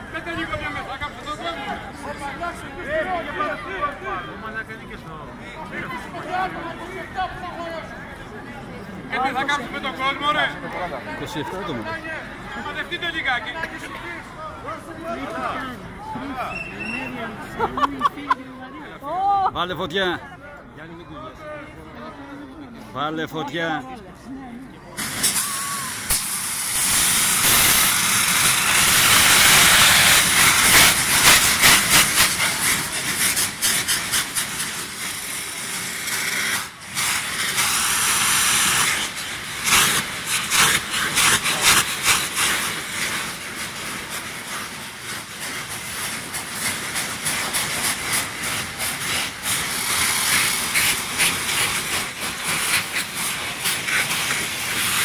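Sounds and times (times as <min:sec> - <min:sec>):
gunpowder rockets hissing: 0:25.0 - 0:55.0
crackles and pops: 0:26.1 - 0:35.3.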